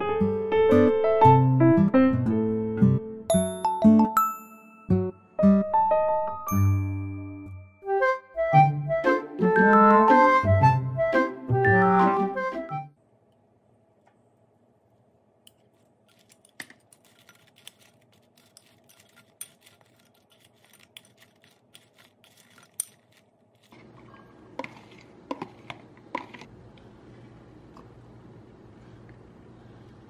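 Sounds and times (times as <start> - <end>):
metal spoon scraping glass bowl: 17.0 - 26.5.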